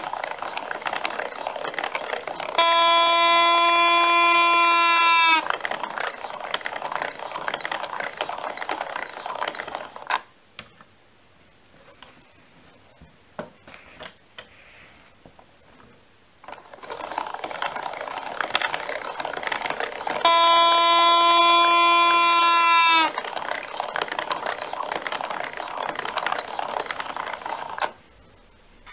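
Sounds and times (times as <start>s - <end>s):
mechanism rattling and clicking: 0.0s - 10.3s, 16.4s - 28.0s
loud steady buzzing tone: 2.6s - 5.5s, 20.2s - 23.2s.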